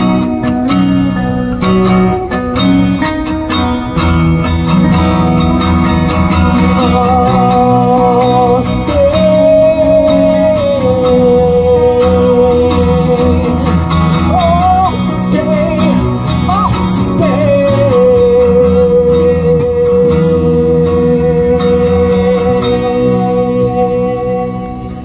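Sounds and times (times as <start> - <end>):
guitars playing: 0.0 - 25.0
person singing: 5.8 - 25.0.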